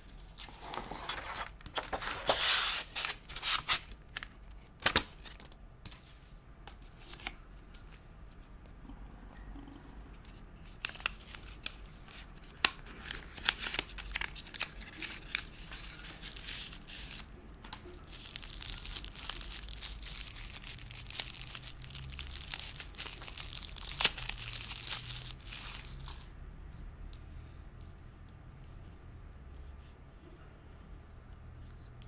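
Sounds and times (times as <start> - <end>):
plastic wrapper crinkling: 18.0 - 26.3.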